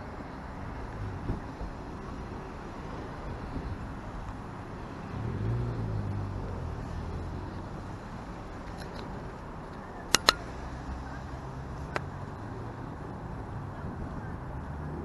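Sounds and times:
road noise rumble: 0:00.0 - 0:15.0
vehicle passing: 0:04.8 - 0:08.4.

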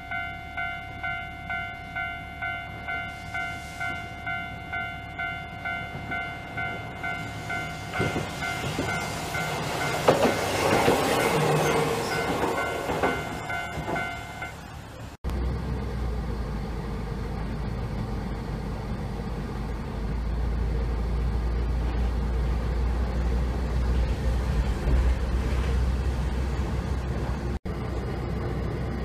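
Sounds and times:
level-crossing alarm ringing: 0:00.0 - 0:14.6
low outdoor rumble: 0:14.6 - 0:29.0.

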